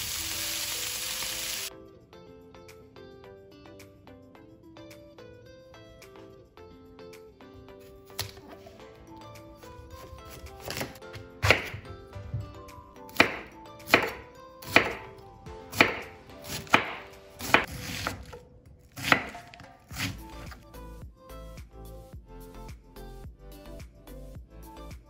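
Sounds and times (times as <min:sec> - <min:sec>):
knife slicing cabbage on wooden board: 0:10.0 - 0:11.9, 0:13.1 - 0:15.1, 0:15.7 - 0:20.6.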